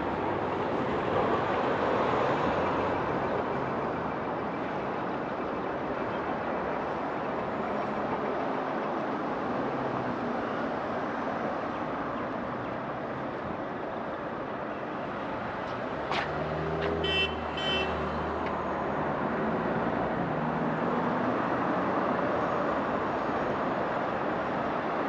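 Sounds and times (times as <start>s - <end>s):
road traffic noise: 0.0s - 25.0s
vehicle passing by: 16.2s - 17.0s.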